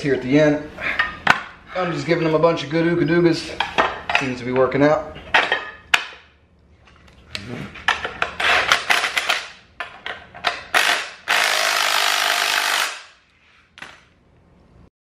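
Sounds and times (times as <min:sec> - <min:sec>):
impact wrench spinning bolt: 0:08.2 - 0:09.5, 0:10.4 - 0:13.2.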